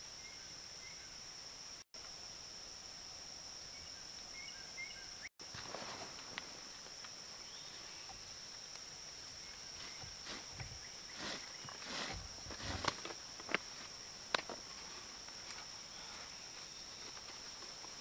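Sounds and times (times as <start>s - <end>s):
rope rustling and rubbing: 9.8s - 13.1s.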